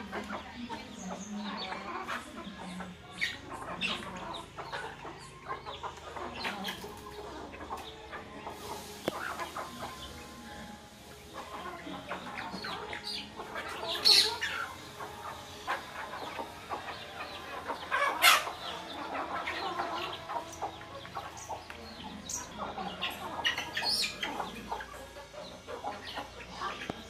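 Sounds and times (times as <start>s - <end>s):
chickens clucking: 0.0s - 27.0s
chicken sharp cries: 12.4s - 20.8s.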